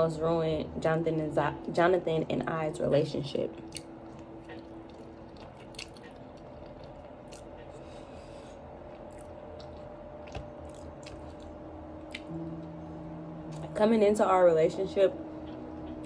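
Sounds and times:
faint steady hum: 0:00.0 - 0:16.0
close chewing of food: 0:03.5 - 0:12.4.

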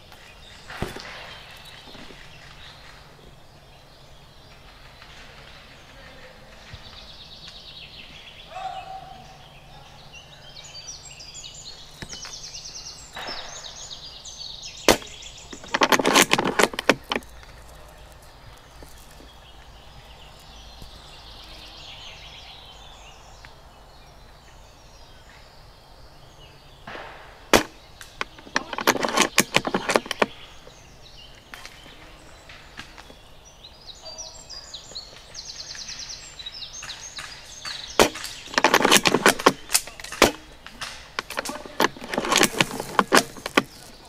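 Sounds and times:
airsoft rifle shots: 0:26.9 - 0:28.3.

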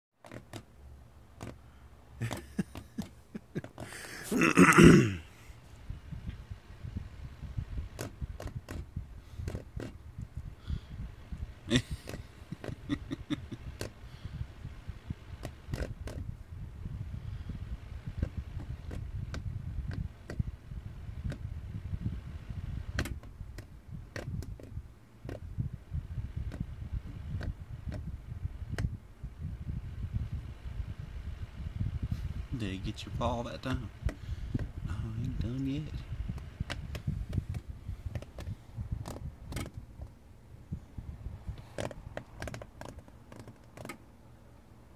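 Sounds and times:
desk fan running: 0:00.2 - 0:44.9
fan blades clicking against paw: 0:01.3 - 0:01.6, 0:02.2 - 0:04.0, 0:05.8 - 0:16.4, 0:17.5 - 0:29.0, 0:32.1 - 0:40.2, 0:41.5 - 0:44.1
throaty cough-like vocal sound: 0:04.1 - 0:05.3
light ticks and taps on fan: 0:18.2 - 0:20.4, 0:28.7 - 0:29.0
low rumble: 0:24.8 - 0:42.2.

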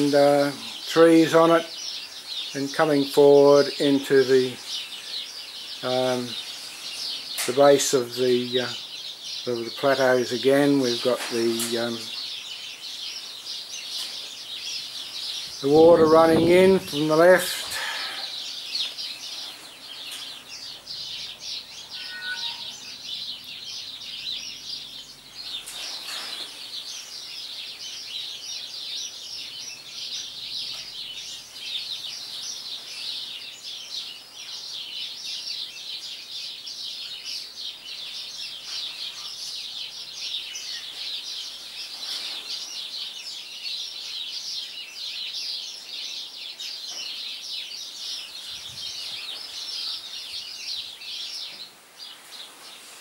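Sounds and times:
many birds chirping: 0:00.0 - 0:53.0.

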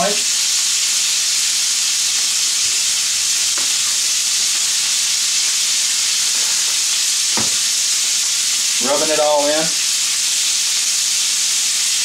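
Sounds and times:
bacon sizzling in frying pan: 0:00.0 - 0:12.0.

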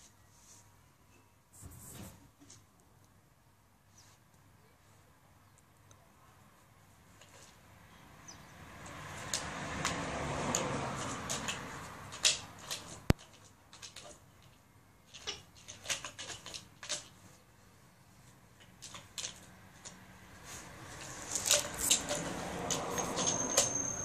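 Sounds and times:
plastic ball rolling and rattling: 0:09.2 - 0:17.2, 0:18.6 - 0:20.0, 0:20.8 - 0:24.0.

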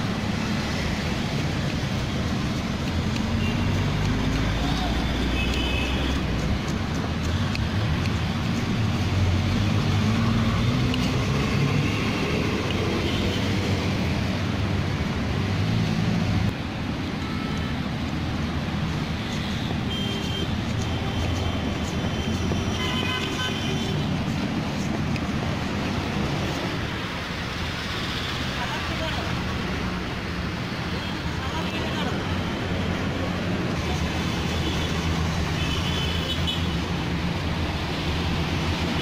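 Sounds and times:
rumble of passing engines: 0:06.0 - 0:17.0
car horns: 0:19.5 - 0:24.1.

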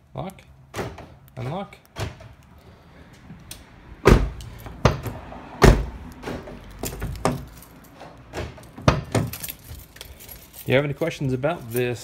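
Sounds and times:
heavy knocks on car door: 0:04.0 - 0:06.0.

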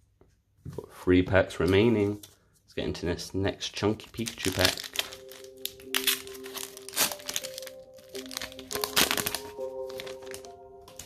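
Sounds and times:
soft background music: 0:02.8 - 0:11.0
foil wrapper crinkling: 0:04.0 - 0:11.0.

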